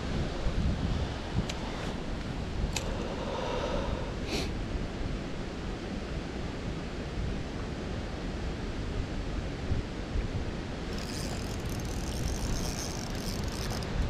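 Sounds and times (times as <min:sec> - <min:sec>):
wind buffeting microphone: 0:00.0 - 0:05.3, 0:09.8 - 0:14.0
steady outdoor hiss: 0:00.0 - 0:14.0.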